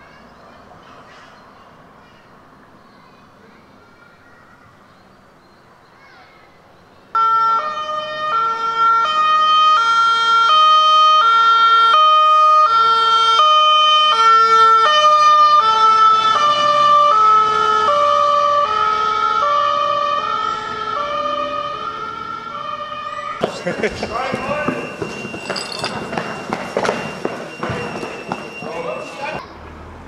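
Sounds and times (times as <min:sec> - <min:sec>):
two-tone siren: 0:07.2 - 0:23.4, 0:24.2 - 0:29.4.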